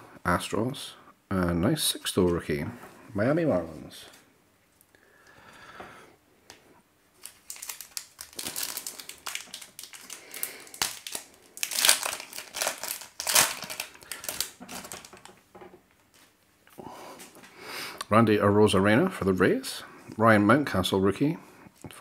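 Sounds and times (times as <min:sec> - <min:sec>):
foil wrapper crinkling and tearing: 0:07.2 - 0:15.3.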